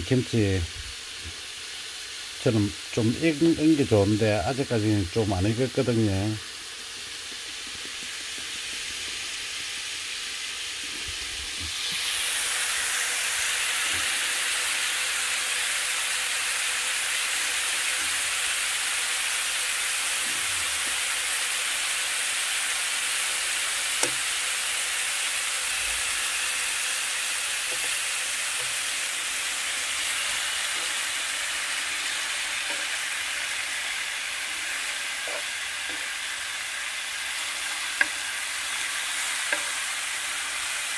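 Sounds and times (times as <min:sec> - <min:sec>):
meat sizzling in a frying pan: 0:00.0 - 0:40.9.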